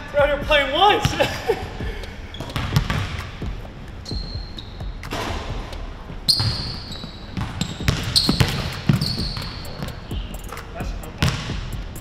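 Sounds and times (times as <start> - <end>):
sneakers squeaking on floor: 2.0 - 12.0
basketball bouncing on wooden floor: 2.3 - 5.7, 6.3 - 10.4, 11.2 - 11.9.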